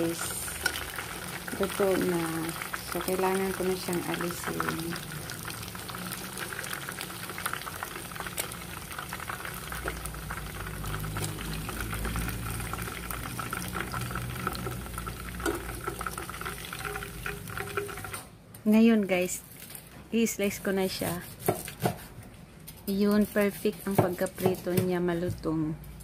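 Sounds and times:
oil sizzling in a pan: 0.0s - 18.3s.

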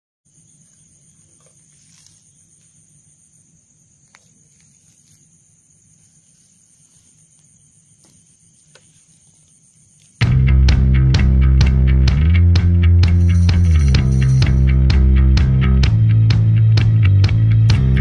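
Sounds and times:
crickets trilling: 0.3s - 10.3s, 13.1s - 14.8s
loud guitar music: 10.2s - 18.0s.

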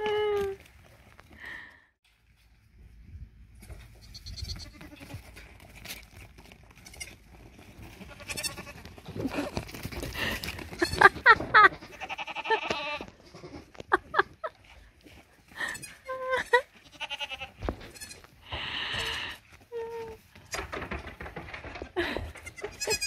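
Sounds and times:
goats bleating: 4.1s - 5.3s, 7.9s - 9.5s, 10.7s - 13.8s, 15.6s - 18.3s.

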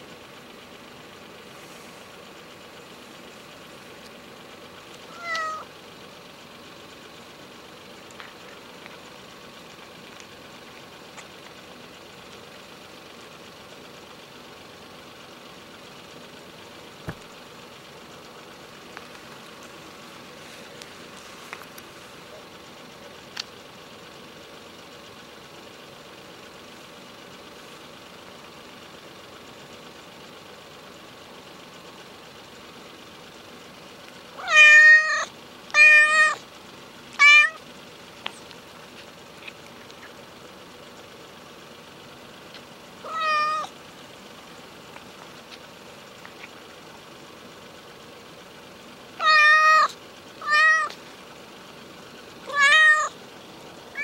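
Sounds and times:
cat meowing: 5.1s - 5.7s, 34.4s - 36.4s, 37.2s - 37.6s, 43.0s - 43.7s, 49.2s - 51.0s, 52.4s - 53.2s.

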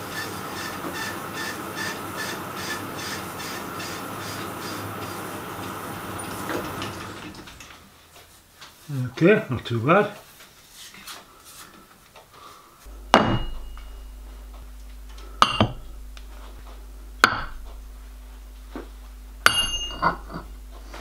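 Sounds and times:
steady low hum: 7.2s - 21.0s.

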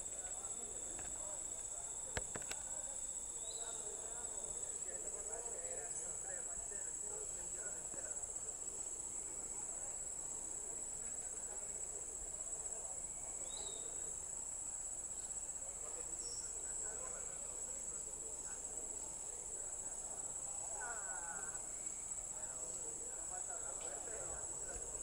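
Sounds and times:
high-pitched insect chorus: 0.0s - 25.0s.

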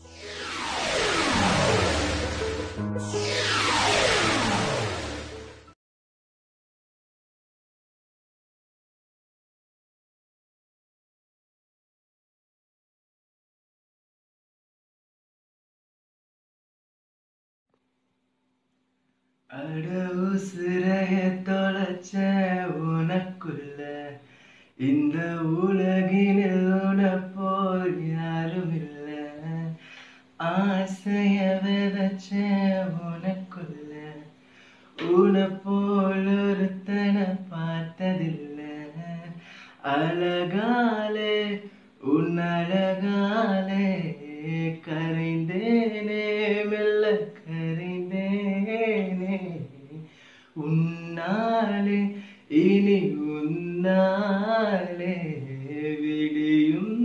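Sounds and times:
man singing unaccompanied: 19.5s - 24.2s, 24.8s - 29.8s, 30.4s - 34.3s, 35.0s - 57.0s
singer breathing: 24.2s - 24.8s, 29.8s - 30.4s, 34.4s - 35.0s, 39.4s - 39.8s, 50.0s - 50.6s, 52.1s - 52.5s.

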